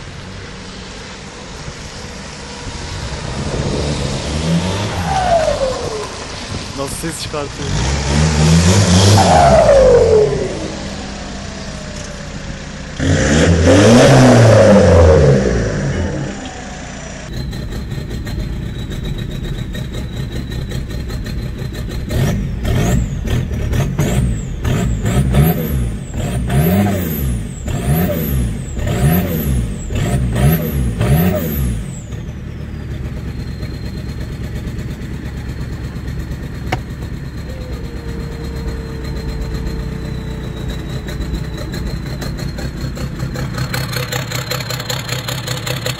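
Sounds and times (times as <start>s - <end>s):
diesel engine idling: 0.0s - 45.9s
diesel engine revving: 0.0s - 45.9s
turbo whistle: 8.9s - 11.6s, 17.3s - 21.7s, 32.4s - 43.8s.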